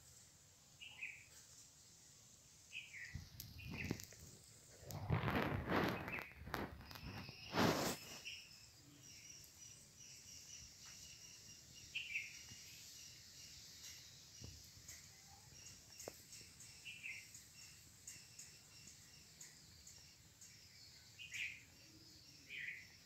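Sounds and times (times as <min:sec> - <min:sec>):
steady repeated chirping: 0:02.6 - 0:04.2, 0:06.0 - 0:23.0
brief burst of noise: 0:04.9 - 0:08.3.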